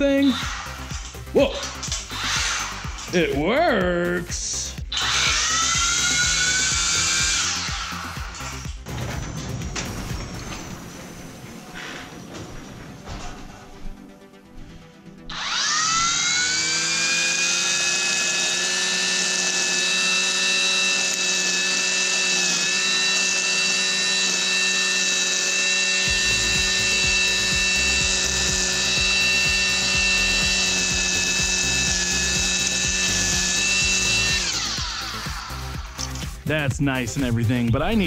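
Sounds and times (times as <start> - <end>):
string trimmer whining: 0.0 - 3.6, 4.5 - 8.8, 15.2 - 36.4.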